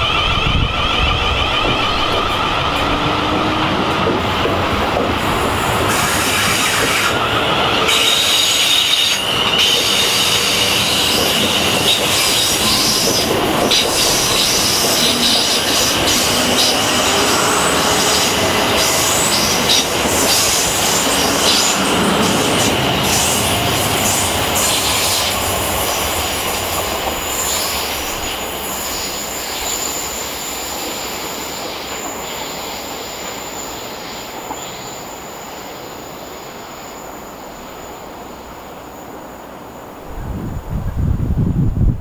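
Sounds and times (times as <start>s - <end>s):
high-pitched wheel squeal: 0.0s - 3.9s, 5.9s - 25.8s
train wheel and rail noise: 0.0s - 42.0s.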